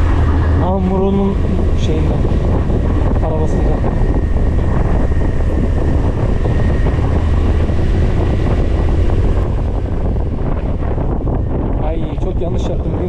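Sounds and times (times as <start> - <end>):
wind noise on microphone: 0.0 - 13.0.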